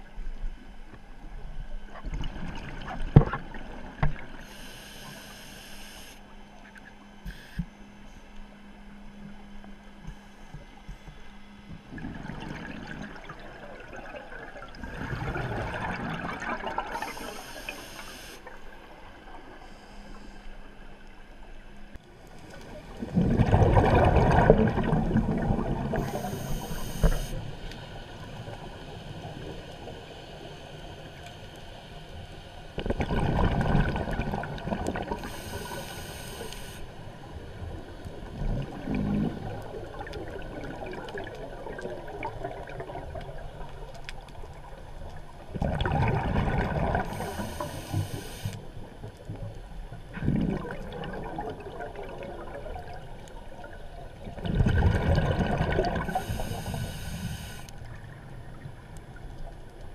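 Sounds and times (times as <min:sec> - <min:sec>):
regulator inhalation: 0:04.4 - 0:06.2, 0:17.0 - 0:18.4, 0:26.0 - 0:27.4, 0:35.2 - 0:36.9, 0:47.1 - 0:48.6, 0:56.1 - 0:57.7
exhaled bubbles underwater: 0:11.8 - 0:17.8, 0:22.6 - 0:30.0, 0:32.8 - 0:36.0, 0:37.3 - 0:59.6.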